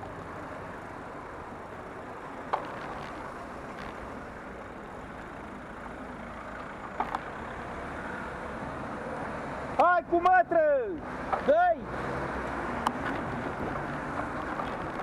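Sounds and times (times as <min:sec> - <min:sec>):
road traffic noise: 0:00.0 - 0:15.0.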